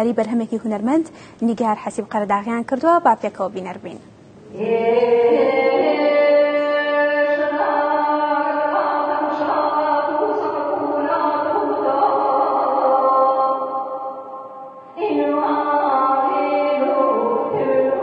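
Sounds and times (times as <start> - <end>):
chanted vocal music: 4.4 - 18.0.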